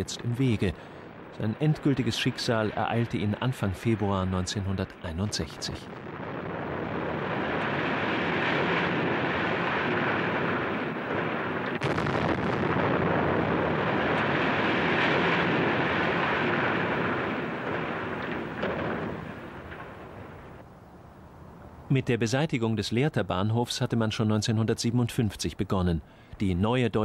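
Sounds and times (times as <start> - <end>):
collapsing masonry and rubble: 0.0 - 20.6.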